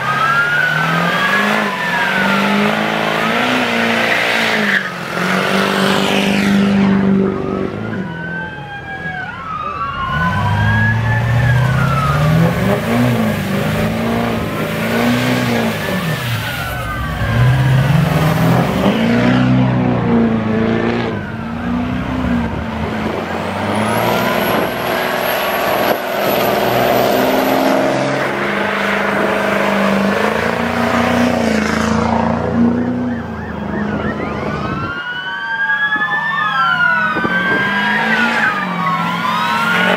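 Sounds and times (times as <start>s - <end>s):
diesel truck engine revving: 0.0s - 8.3s, 9.5s - 34.9s, 36.6s - 39.9s
police sirens wailing: 0.0s - 39.9s.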